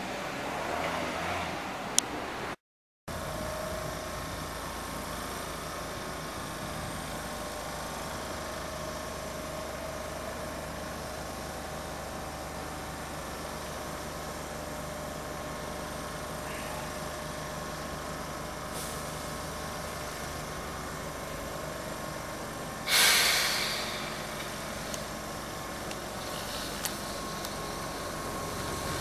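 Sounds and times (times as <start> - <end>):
electric train equipment hum: 3.1 - 29.0
brake air hiss: 18.6 - 20.6, 22.8 - 29.0.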